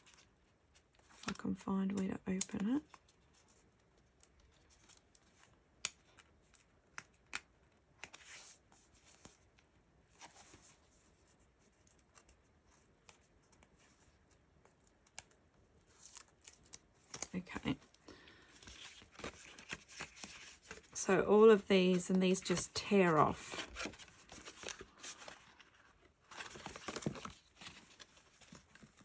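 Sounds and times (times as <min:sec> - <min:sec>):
packaging and card rustling: 0:11.7 - 0:29.0.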